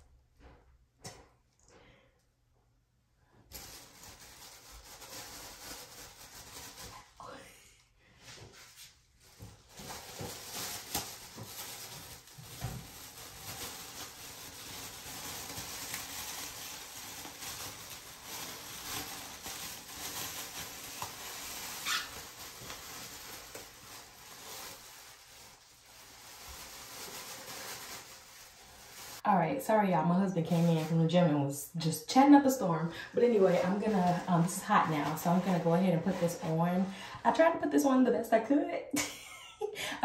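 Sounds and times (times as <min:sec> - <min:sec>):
plastic shower cap crinkling: 0:03.5 - 0:07.2, 0:08.4 - 0:29.2, 0:33.2 - 0:36.9.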